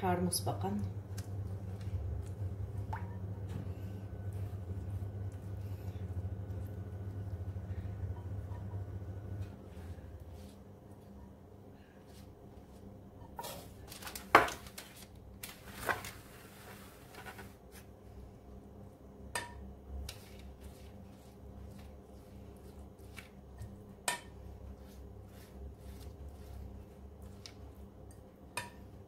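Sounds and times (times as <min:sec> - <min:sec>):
pastry brush brushing: 0:09.7 - 0:11.2, 0:20.1 - 0:23.8, 0:24.4 - 0:28.1.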